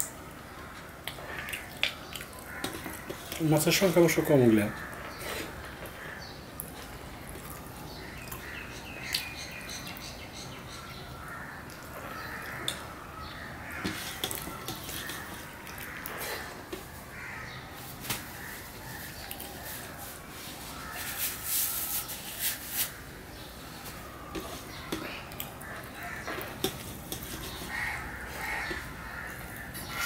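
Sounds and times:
chewing and mouth sounds: 0:00.8 - 0:03.4
fingers scraping rice on steel plate: 0:13.8 - 0:16.5, 0:26.2 - 0:30.0.

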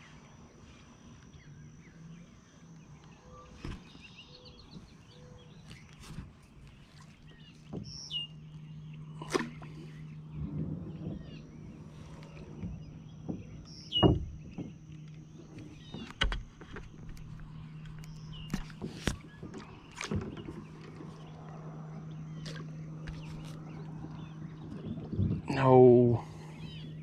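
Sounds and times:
steady low hum: 0:00.0 - 0:27.0
fishing rod and reel clicking: 0:14.9 - 0:19.2.

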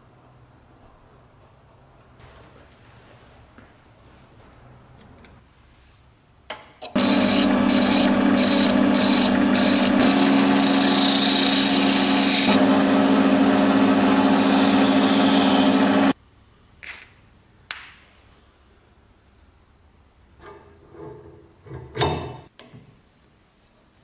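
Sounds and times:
file rasping on wood: 0:07.0 - 0:16.2
lathe motor hum and whine: 0:07.0 - 0:16.2
sandpaper rubbing on wood: 0:07.0 - 0:16.2.

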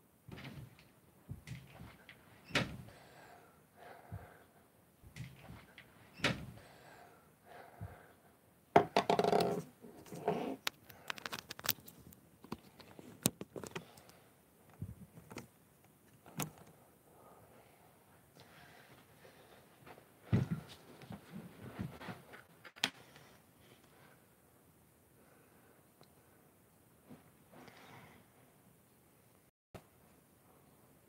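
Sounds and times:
knocks and bumps: 0:00.3 - 0:02.9.

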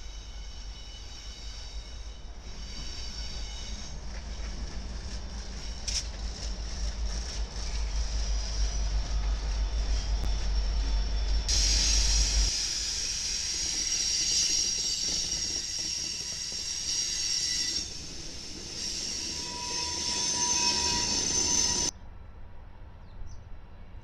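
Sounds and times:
hiss of train wheels on rail: 0:00.0 - 0:21.9
thin wheel squeal: 0:00.0 - 0:21.9.

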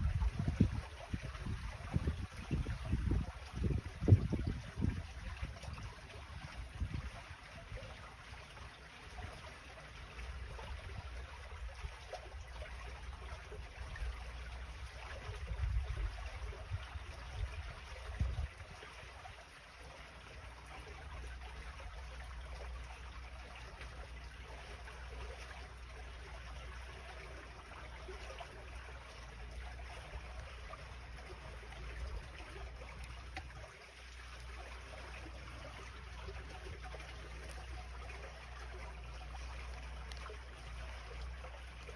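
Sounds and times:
wind gusts on microphone: 0:00.0 - 0:07.8, 0:15.1 - 0:18.8
water trickling through a gutter: 0:00.0 - 0:41.9.

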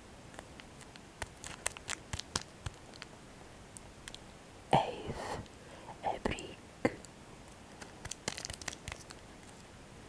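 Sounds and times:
plastic wrapper crinkling: 0:00.3 - 0:03.1, 0:07.7 - 0:09.6.

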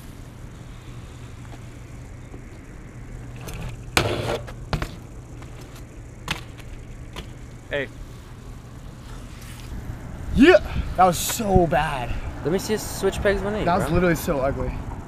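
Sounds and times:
steady traffic rumble: 0:00.0 - 0:15.0
bike pegs scraping concrete: 0:03.3 - 0:07.4
bike hitting concrete ledge: 0:03.3 - 0:07.5.

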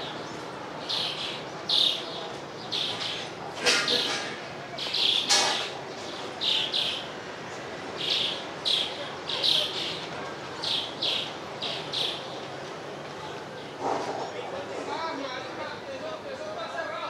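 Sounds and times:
bird chirping: 0:00.0 - 0:10.0, 0:10.6 - 0:12.3
outdoor background noise: 0:00.0 - 0:17.0.

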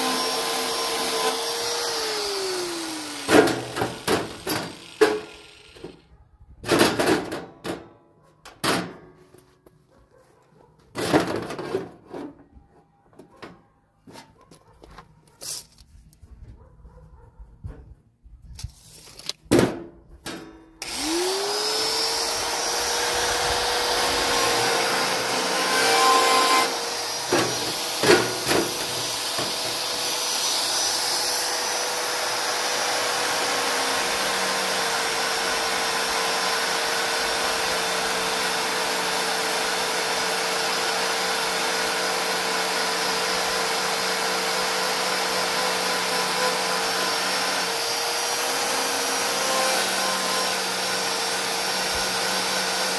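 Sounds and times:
electric tool motor whining: 0:00.0 - 0:06.1, 0:20.8 - 0:52.9.

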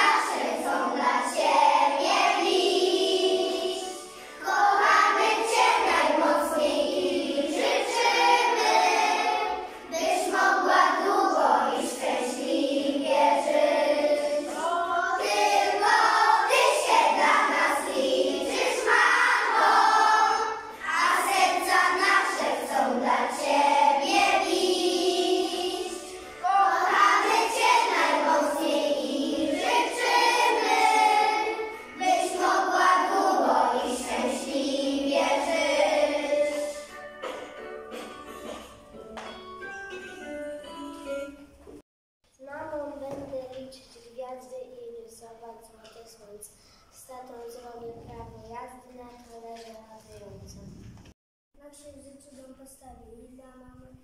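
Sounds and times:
children singing in chorus: 0:00.0 - 0:36.9.

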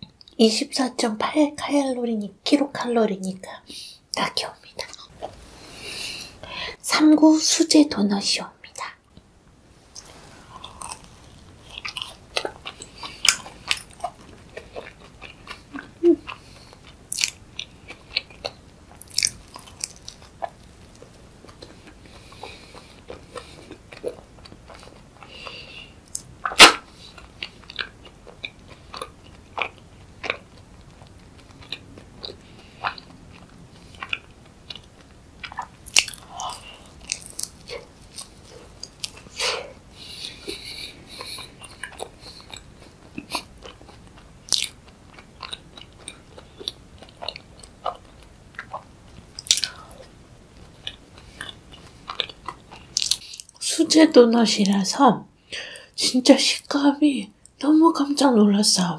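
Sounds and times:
person chewing donut: 0:09.9 - 0:53.6.

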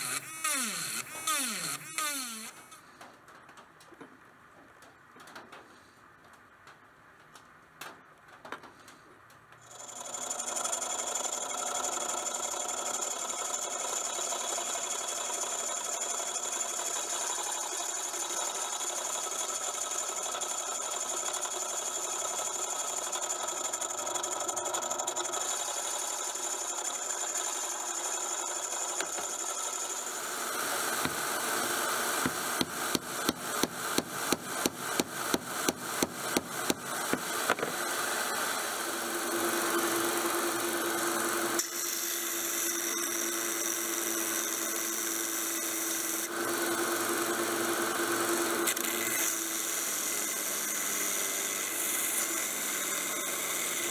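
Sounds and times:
drill press drilling steel: 0:00.0 - 0:02.8, 0:09.6 - 0:53.9.

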